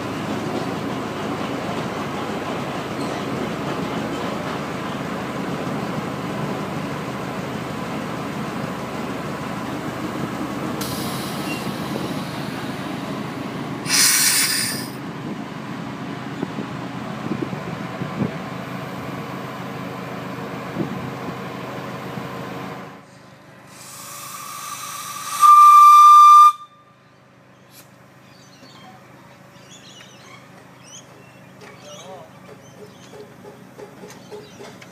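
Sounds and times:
wheels rumbling on track: 0.0s - 34.9s
puff of steam: 10.8s - 12.7s, 13.8s - 15.0s, 23.7s - 26.6s
steam locomotive whistle: 13.9s - 15.0s, 23.8s - 27.0s.

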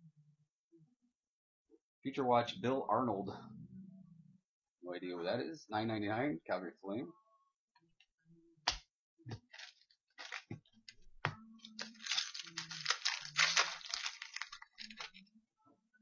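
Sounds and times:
cards clicking and tapping: 8.7s - 10.6s, 11.2s - 15.2s
foil wrapper crinkling and tearing: 9.6s - 10.6s, 11.7s - 15.2s.

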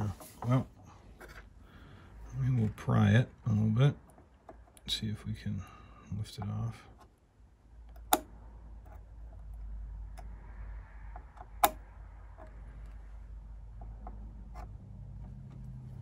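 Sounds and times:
low steady hum: 0.0s - 16.0s
tweezers clicking on circuit board: 7.8s - 8.3s, 11.2s - 11.8s.

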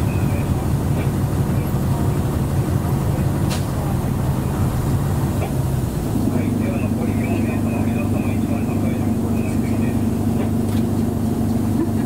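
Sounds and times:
bus engine and road drone: 0.0s - 12.0s.

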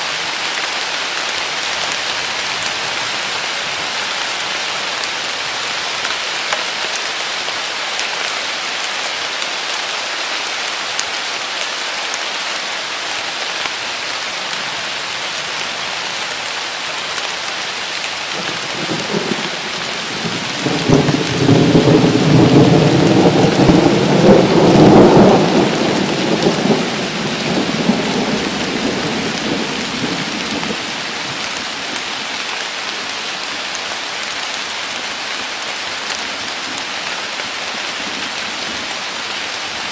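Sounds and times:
heavy rain falling: 0.0s - 39.9s
thunder rumbling: 18.4s - 31.0s.

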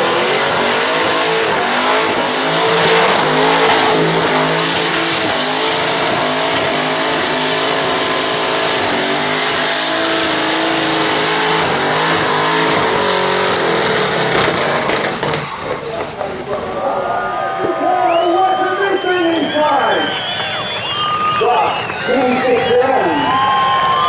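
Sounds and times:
car engine revving: 0.0s - 17.3s
tyres squealing: 0.0s - 23.0s.

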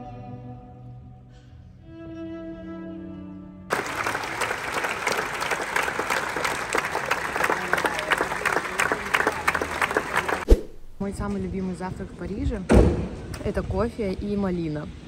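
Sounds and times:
audience applauding: 3.7s - 10.5s.

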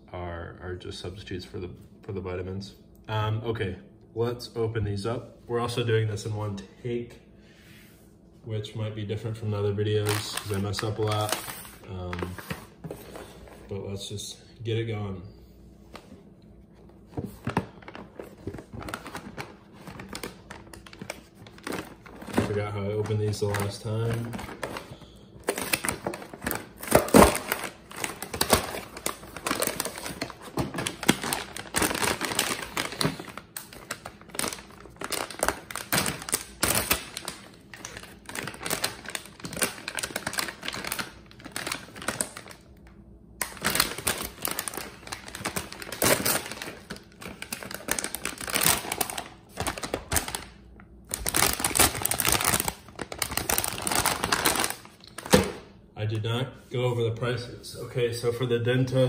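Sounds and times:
plastic bag crinkling: 9.8s - 12.8s, 17.3s - 42.7s, 43.4s - 55.6s.

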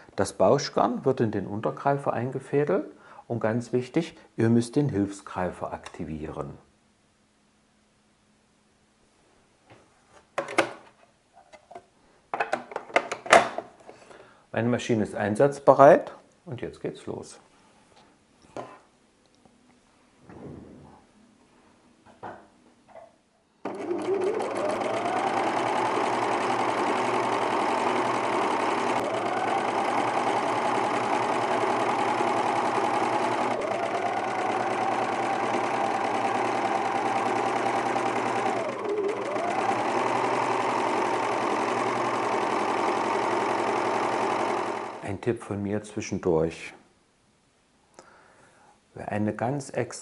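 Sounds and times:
overlock sewing machine running: 23.6s - 45.0s.

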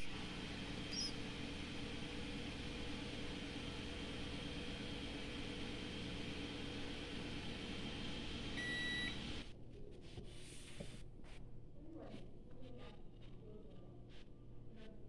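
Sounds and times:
kitchen appliance humming: 0.0s - 9.5s.

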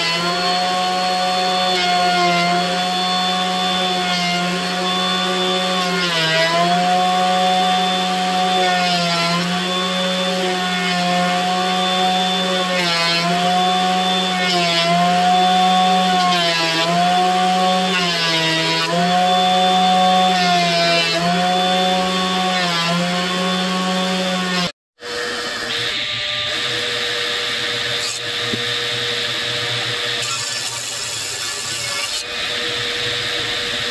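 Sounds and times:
planer cutting wood: 0.0s - 33.9s
thickness planer running: 0.1s - 33.9s.

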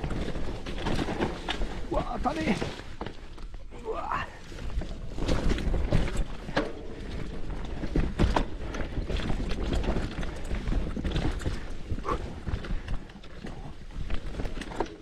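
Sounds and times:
bike knocking and rattling: 0.0s - 15.0s.

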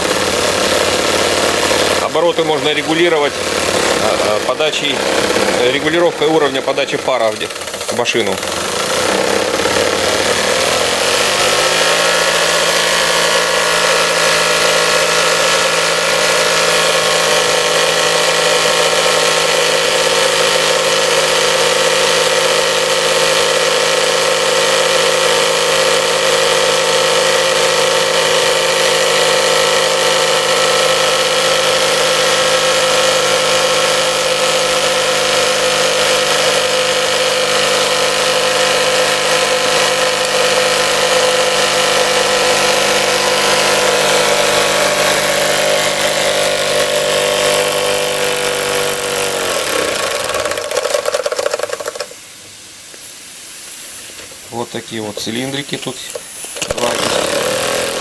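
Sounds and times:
steam engine whirring: 0.0s - 52.2s, 54.9s - 58.0s.

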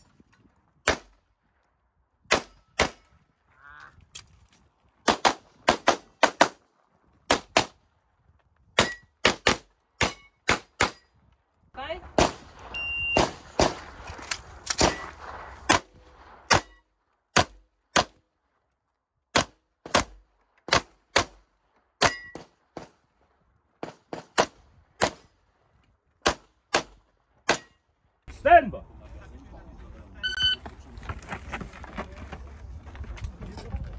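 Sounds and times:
pistol shots: 5.0s - 6.6s, 8.8s - 11.0s, 12.1s - 13.9s
metallic ring of steel targets: 8.8s - 9.2s, 22.0s - 22.5s.

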